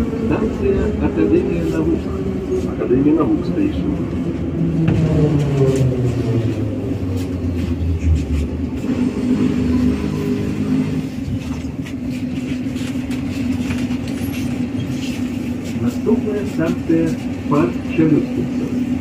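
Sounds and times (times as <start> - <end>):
train motor hum while braking: 4.7 - 11.2.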